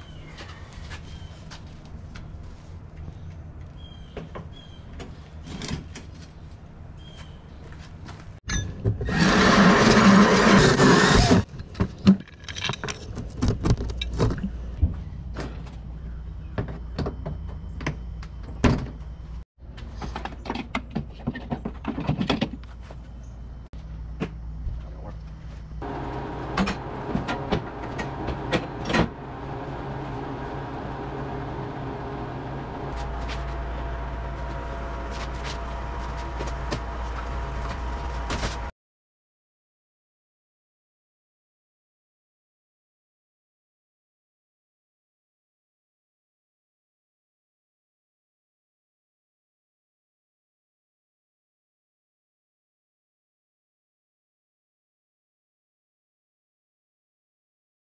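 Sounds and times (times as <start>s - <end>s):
drill with hole saw cutting panel: 9.1s - 11.4s.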